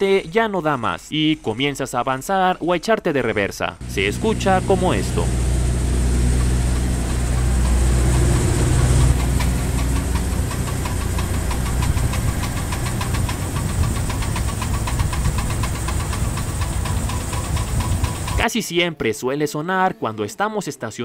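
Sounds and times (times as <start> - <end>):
engine humming: 3.8 - 18.4
cv joint clicking: 6.2 - 18.4.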